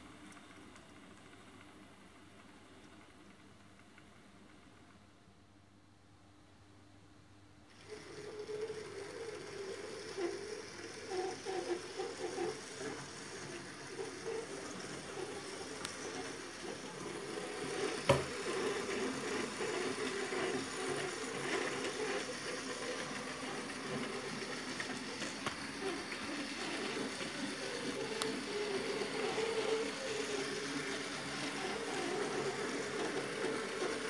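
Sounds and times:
model train motor buzzing: 0:07.7 - 0:34.0.

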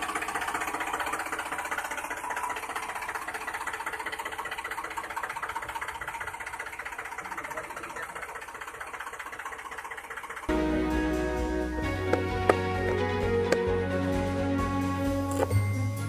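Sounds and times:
fast mechanical rattling: 0:00.0 - 0:10.5.

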